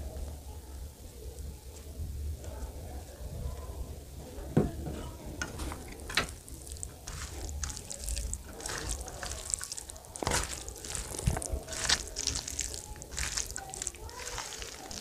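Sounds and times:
hand squishing rice: 0:06.2 - 0:15.0
gravy poured over rice: 0:06.4 - 0:15.0.

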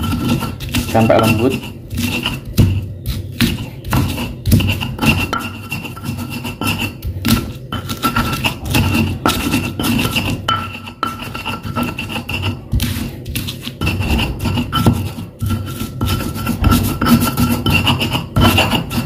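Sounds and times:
stone pestle grinding in mortar: 0:00.0 - 0:19.0.

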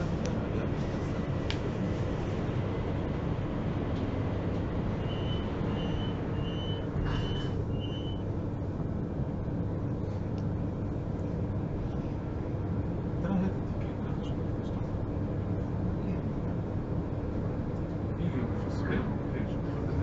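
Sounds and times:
train interior hum: 0:00.0 - 0:20.0
short high warning beeps: 0:05.0 - 0:08.2.

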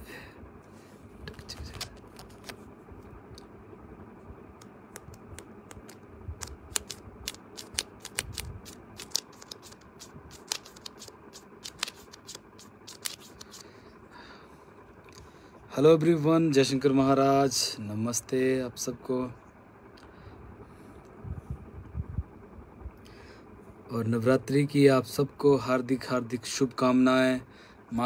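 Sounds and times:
fingers tapping phone screen: 0:01.3 - 0:02.6, 0:04.6 - 0:13.6.

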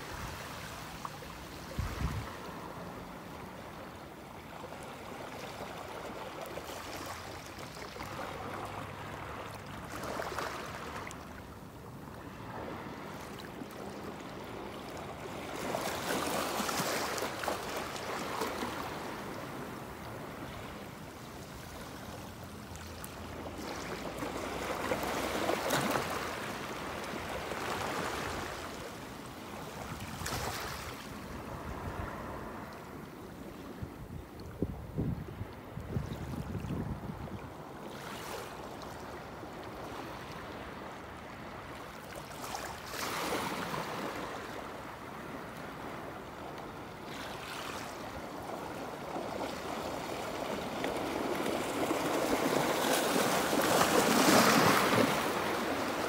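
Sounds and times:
waves washing over seawall: 0:48.6 - 0:56.0.

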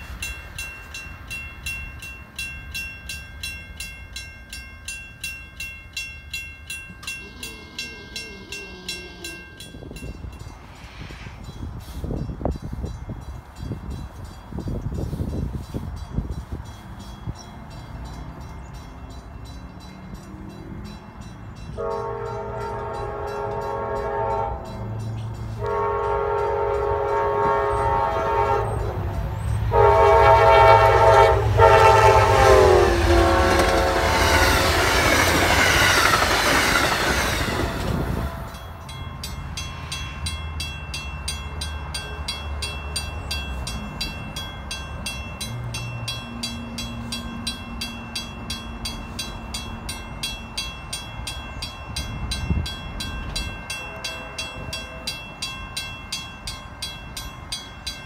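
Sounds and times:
train rushing past: 0:00.0 - 0:05.0, 0:06.7 - 0:58.0
crossing warning bell ringing: 0:00.0 - 0:58.0
train horn blasts: 0:21.7 - 0:35.0, 0:37.4 - 0:38.7, 0:53.7 - 0:55.3.

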